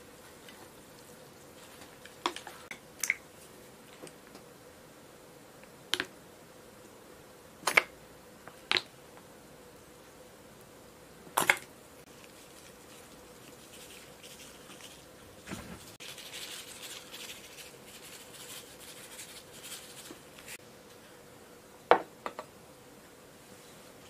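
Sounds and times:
seasoning pattering onto food: 0:12.1 - 0:15.2, 0:15.8 - 0:20.6
plastic bag rustling: 0:12.1 - 0:20.6.

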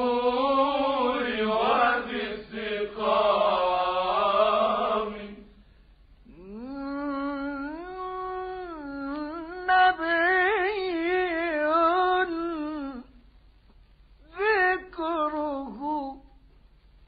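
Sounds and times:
man singing unaccompanied: 0:00.0 - 0:05.5.

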